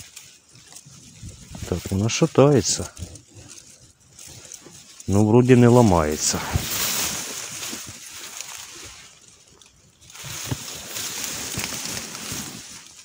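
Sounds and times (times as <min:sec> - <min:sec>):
reeds rustling and crackling: 0:00.0 - 0:13.0
reed stalks snapping: 0:02.9 - 0:13.0.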